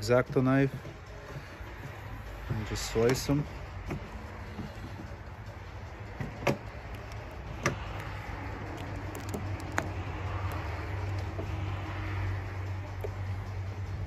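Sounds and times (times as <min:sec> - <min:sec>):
steady low hum: 0:03.4 - 0:14.0.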